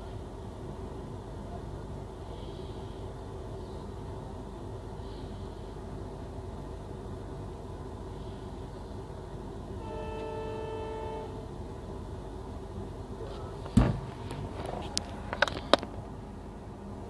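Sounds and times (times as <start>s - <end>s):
train rumbling: 0.0s - 17.0s
train horn: 9.8s - 11.6s
loud knock: 13.8s - 14.1s.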